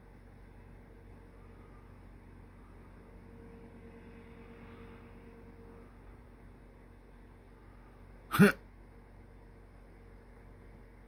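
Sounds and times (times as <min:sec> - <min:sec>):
faint steady hum: 0:00.0 - 0:11.0
person hiccup-like throat sound: 0:08.3 - 0:08.6.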